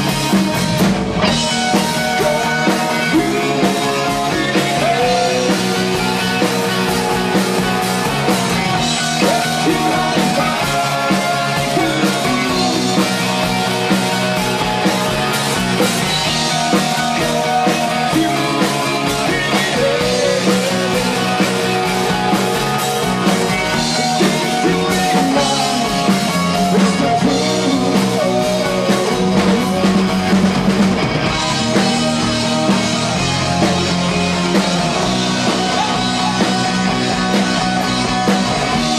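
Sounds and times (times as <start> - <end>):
rock band playing: 0.0 - 38.9
man singing lead vocal: 1.6 - 13.7, 16.2 - 30.4, 35.3 - 37.5.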